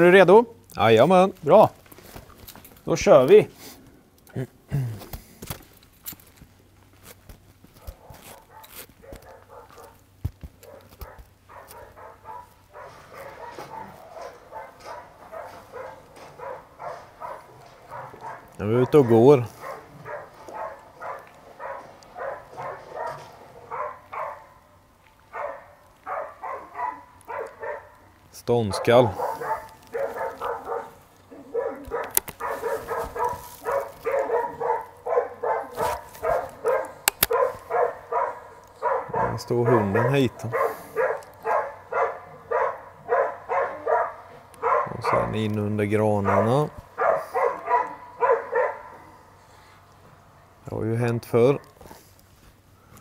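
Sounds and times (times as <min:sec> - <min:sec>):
dog yelping and barking: 0:07.8 - 0:10.0, 0:10.6 - 0:24.6, 0:25.3 - 0:28.1, 0:28.8 - 0:45.3, 0:46.2 - 0:49.3
sharp clicks: 0:31.9 - 0:32.4, 0:36.6 - 0:37.5.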